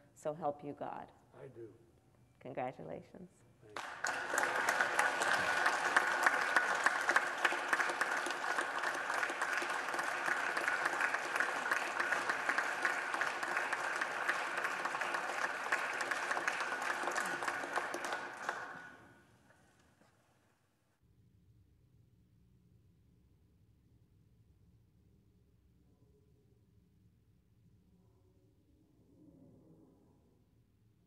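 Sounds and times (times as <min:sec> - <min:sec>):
hands clapping: 0:03.8 - 0:19.2.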